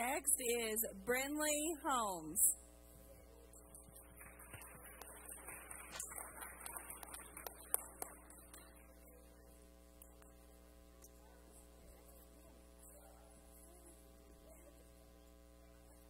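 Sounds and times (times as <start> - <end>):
steady electrical hum: 0.0 - 16.0
light clapping: 4.2 - 8.8.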